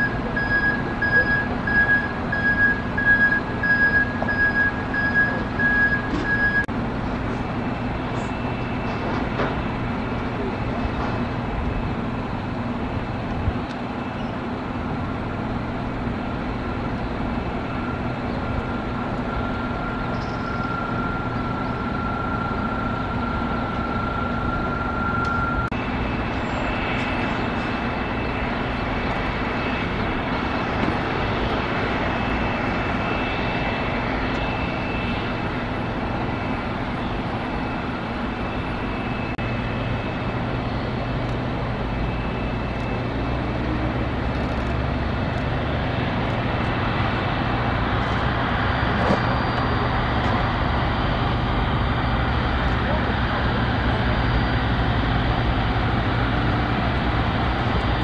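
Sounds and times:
jet engines rumble and whine: 0:00.0 - 0:58.0.

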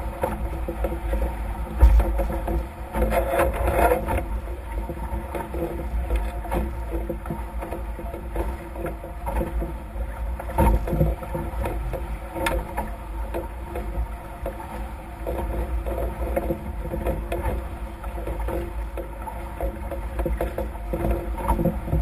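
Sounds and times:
wind rumble on microphone: 0:00.0 - 0:22.0
steady hum: 0:01.4 - 0:02.9.

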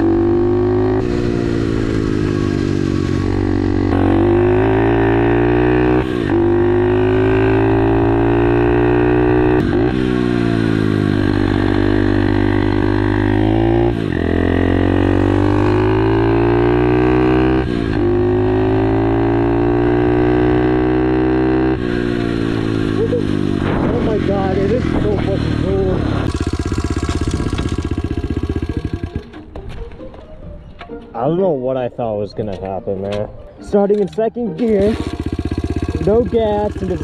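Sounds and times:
small motorbike engine revving: 0:00.0 - 0:29.4, 0:34.7 - 0:37.0.

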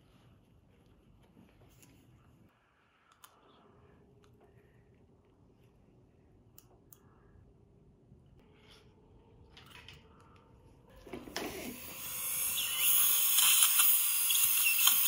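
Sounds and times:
suction aspirator hissing: 0:11.4 - 0:15.0.

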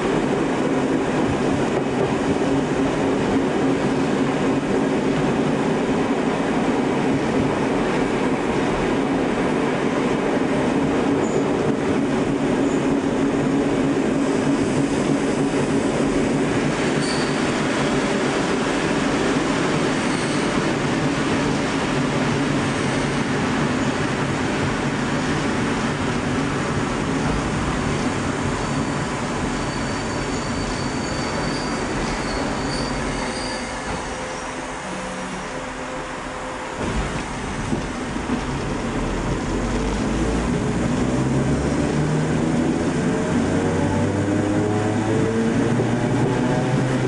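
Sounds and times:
train wheels and motors rumbling: 0:00.0 - 0:47.0
faint high squeals: 0:17.0 - 0:17.5, 0:20.0 - 0:20.6, 0:28.6 - 0:35.5.

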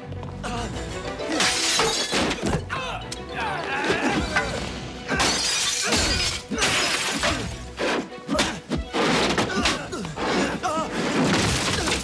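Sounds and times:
action film music: 0:00.0 - 0:12.0
glass shattering: 0:01.3 - 0:02.6, 0:04.2 - 0:07.5, 0:11.2 - 0:12.0
crashing smashing impacts: 0:11.0 - 0:12.0.

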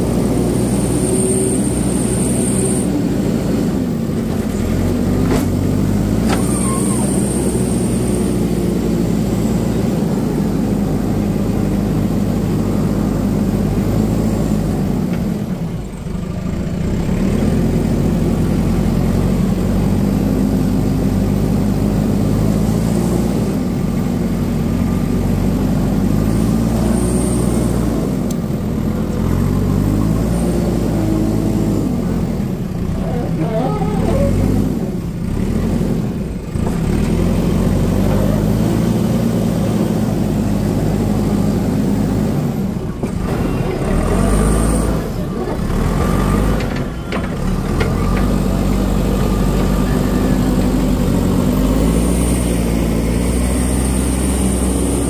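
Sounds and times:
diesel engine revving: 0:00.0 - 0:55.0.

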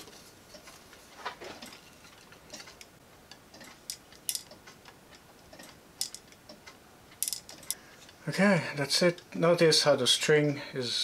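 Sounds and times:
plastic parts clicking and knocking: 0:03.5 - 0:07.8.

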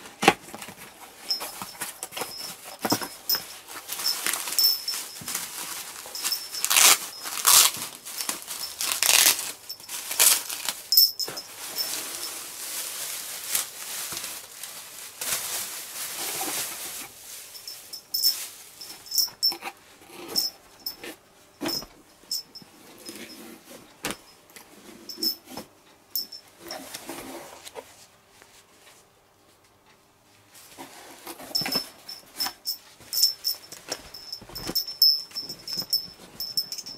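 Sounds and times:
plastic bag crinkling: 0:00.6 - 0:19.5, 0:32.8 - 0:36.9.

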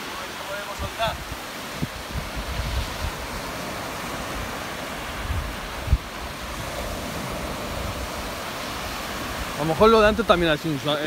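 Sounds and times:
small waves breaking on beach: 0:00.0 - 0:11.0
wind buffeting microphone: 0:00.5 - 0:10.8.

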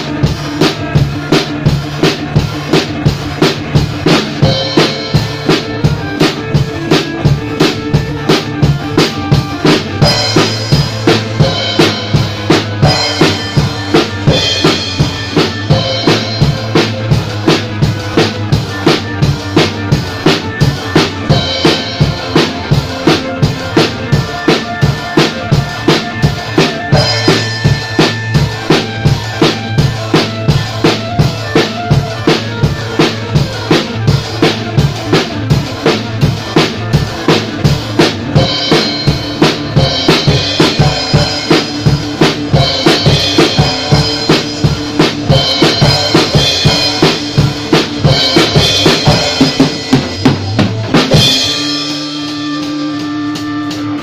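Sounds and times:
drum kit rock beat: 0:00.0 - 0:54.0
rock backing track: 0:00.0 - 0:54.0.

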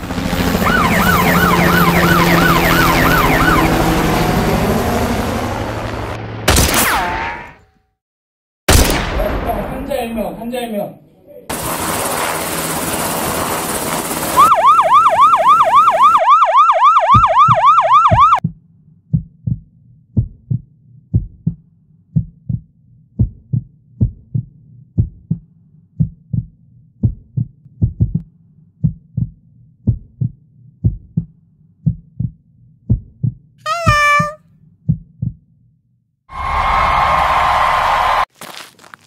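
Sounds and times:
helicopter rotor noise: 0:00.0 - 0:06.5, 0:11.5 - 0:16.0
electronic yelp siren: 0:00.5 - 0:05.6, 0:14.4 - 0:18.4, 0:33.7 - 0:34.4
heartbeat low thumps: 0:17.1 - 0:21.6, 0:22.2 - 0:25.4, 0:26.0 - 0:34.3.

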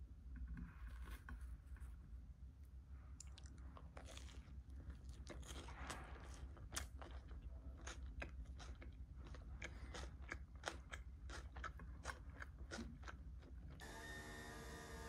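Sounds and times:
crisp food crunching: 0:03.2 - 0:13.8
steady hum with held tones: 0:13.8 - 0:15.0.

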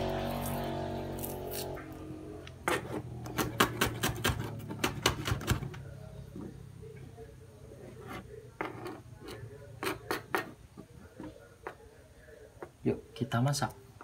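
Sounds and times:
knife chopping on plastic board: 0:03.3 - 0:05.7.

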